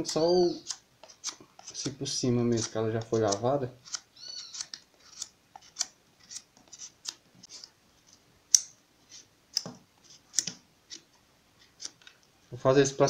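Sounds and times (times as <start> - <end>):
knife scraping pumpkin skin: 0.0 - 7.7.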